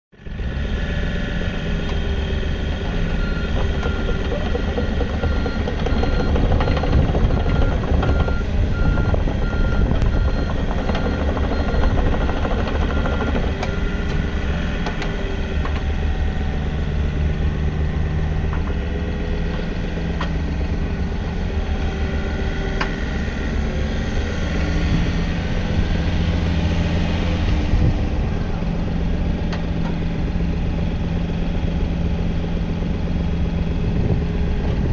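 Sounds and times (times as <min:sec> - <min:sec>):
excavator diesel engine running: 0:00.2 - 0:34.9
rapid repeated beep: 0:03.2 - 0:14.0.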